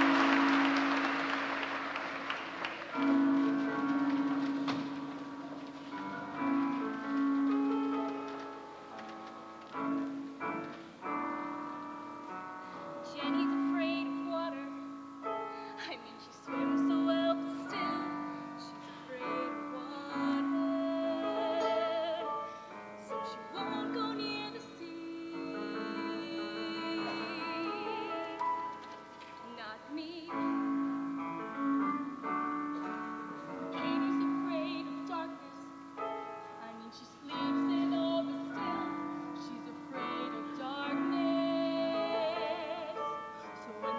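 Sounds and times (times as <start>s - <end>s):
piano accompaniment: 0.0s - 43.9s
women singing a duet: 15.8s - 22.5s, 23.1s - 28.5s, 33.5s - 35.7s, 36.6s - 43.9s.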